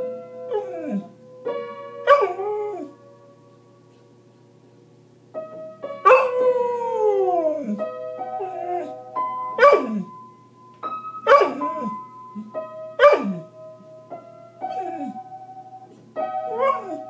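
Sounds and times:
music of steady held notes: 0.0 - 17.0
dog howling: 6.1 - 7.8, 8.4 - 9.0, 14.7 - 15.2, 16.5 - 17.0.

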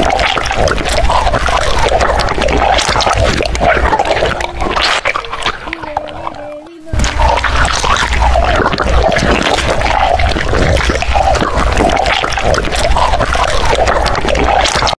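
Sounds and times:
wet noodle slurping: 0.0 - 15.0.

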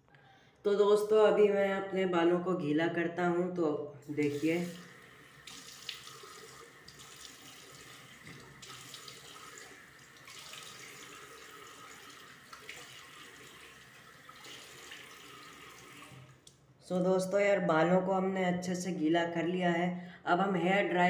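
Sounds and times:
small water splashes: 4.3 - 16.5
tap running into sink: 5.4 - 13.6.

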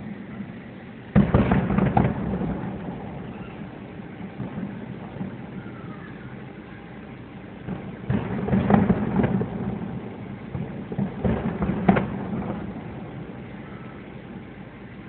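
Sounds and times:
distant fireworks booming: 0.0 - 15.0.

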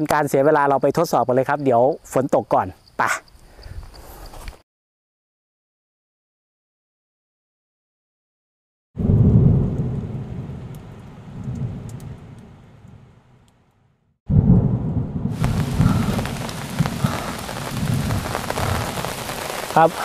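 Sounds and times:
heavy rain: 9.0 - 13.1, 15.2 - 20.0
thunder rumbling: 9.0 - 13.5, 14.3 - 20.0.

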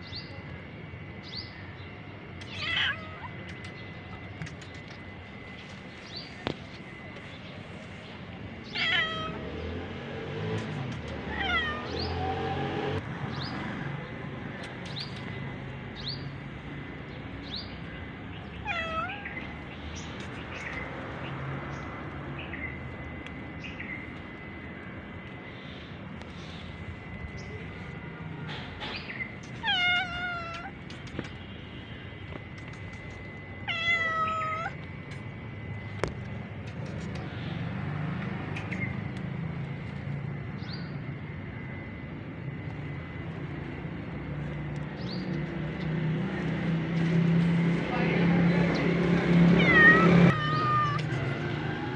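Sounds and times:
cat meowing: 2.4 - 3.6, 8.7 - 9.4, 10.6 - 12.3, 18.6 - 19.5, 29.4 - 31.4, 33.6 - 34.8, 49.4 - 51.9.

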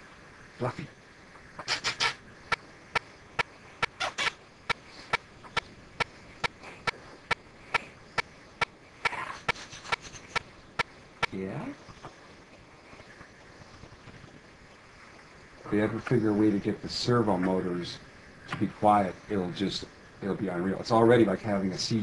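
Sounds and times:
robotic toy chirping: 1.6 - 2.2, 3.8 - 4.4.

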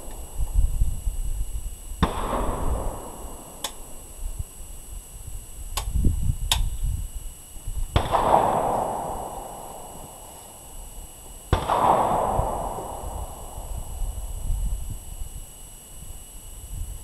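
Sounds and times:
gunshots with echo: 2.0 - 3.6, 8.0 - 10.0, 11.5 - 13.6.

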